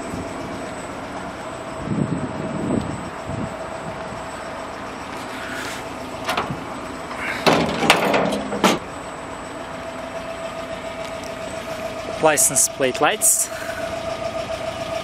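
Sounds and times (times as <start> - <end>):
metallic clanks and rattling: 6.2 - 6.7, 7.3 - 8.8.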